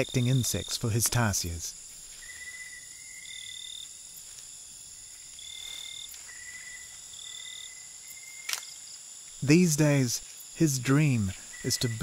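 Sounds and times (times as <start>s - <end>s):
insect chorus trilling: 0.0s - 12.0s
whistle-like insect notes: 2.0s - 4.0s, 5.0s - 12.0s.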